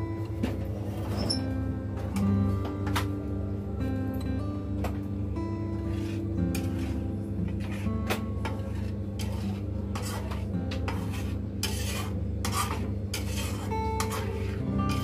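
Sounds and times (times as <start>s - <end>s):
background music: 0.0s - 9.2s
spatula scraping metal wok: 0.8s - 1.6s, 5.7s - 15.0s.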